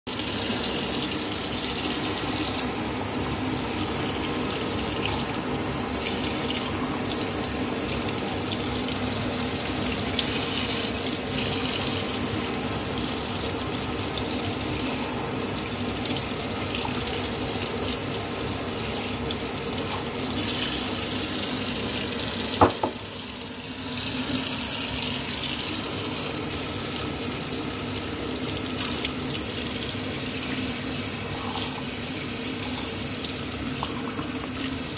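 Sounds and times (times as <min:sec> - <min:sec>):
tap water splashing into sink: 0:19.2 - 0:23.1, 0:32.8 - 0:34.9.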